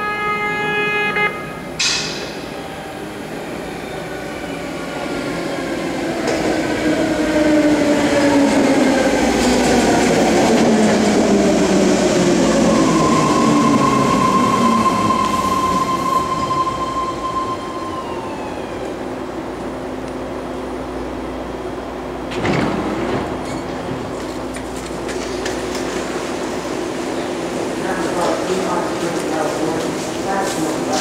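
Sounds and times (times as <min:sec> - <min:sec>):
steady high tone: 0:12.4 - 0:19.2
train brakes whining: 0:12.5 - 0:19.0
train wheels rushing on rails: 0:22.2 - 0:31.0.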